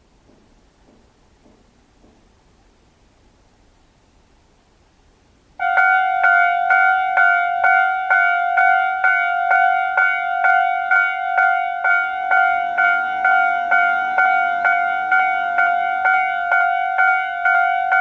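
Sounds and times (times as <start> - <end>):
level crossing alarm: 5.6 - 18.0.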